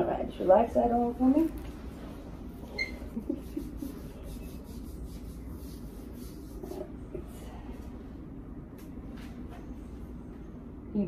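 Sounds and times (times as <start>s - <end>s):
steady low hum: 0.0s - 11.0s
rubbing and handling: 1.8s - 7.0s.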